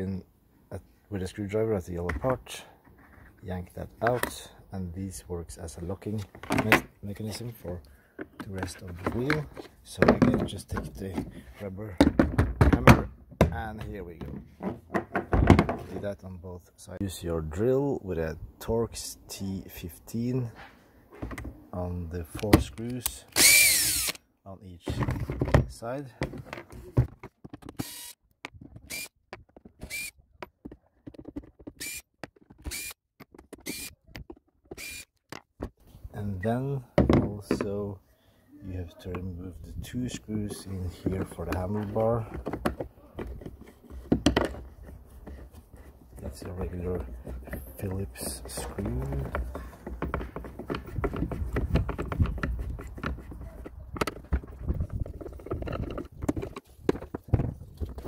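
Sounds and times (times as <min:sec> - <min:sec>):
light clicks and knocks of tool handling: 0:06.0 - 0:12.9, 0:40.1 - 0:58.0
cordless drill whirring: 0:23.3 - 0:24.2, 0:27.8 - 0:28.2, 0:28.9 - 0:29.2, 0:29.9 - 0:30.1, 0:31.8 - 0:32.0, 0:32.7 - 0:33.0, 0:33.6 - 0:33.9, 0:34.7 - 0:35.1.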